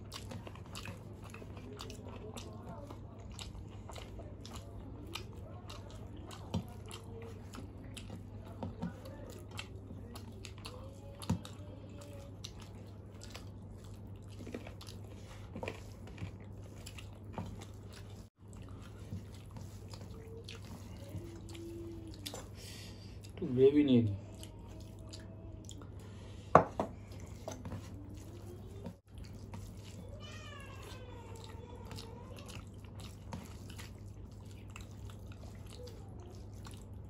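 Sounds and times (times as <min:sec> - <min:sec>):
close chewing: 0:00.0 - 0:37.0.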